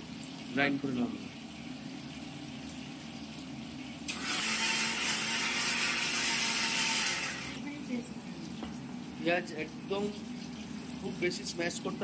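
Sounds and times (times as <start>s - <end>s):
mixer grinder motor whirring: 4.1s - 7.6s.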